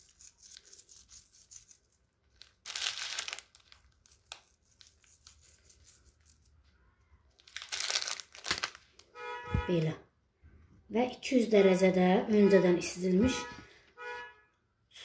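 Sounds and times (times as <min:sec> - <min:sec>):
crinkling rustle: 0:02.2 - 0:06.5, 0:07.4 - 0:09.1.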